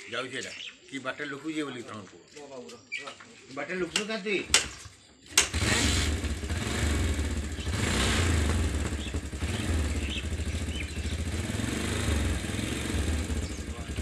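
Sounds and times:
small engine idling: 4.6s - 14.0s.

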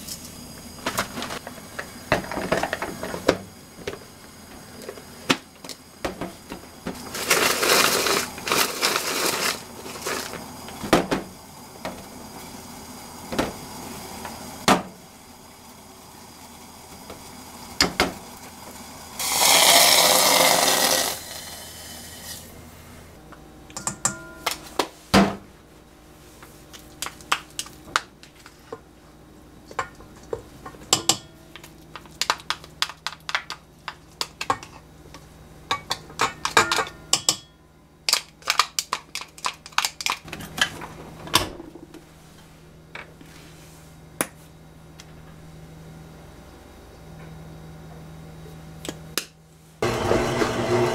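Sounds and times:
hand chopper whirring: 19.2s - 21.6s
water pouring from kettle: 19.2s - 21.7s
utensils tapping and clinking: 23.7s - 24.7s, 29.7s - 34.8s, 35.7s - 37.5s.

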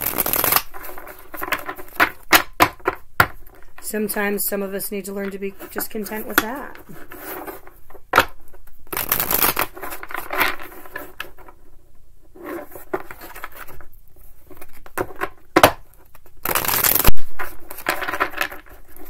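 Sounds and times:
cards being shuffled: 0.0s - 3.8s, 5.2s - 11.6s, 16.0s - 19.0s.

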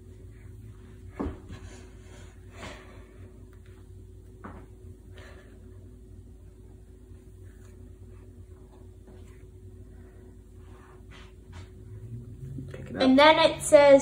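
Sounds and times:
dough kneading thumps: 0.0s - 2.5s
faint steady hum: 0.0s - 14.0s.

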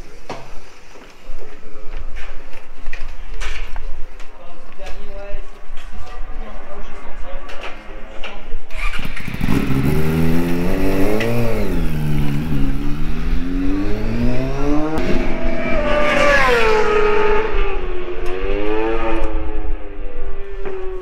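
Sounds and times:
racing motorcycle engines revving: 5.8s - 21.0s
motorcycle passing by: 8.7s - 21.0s.

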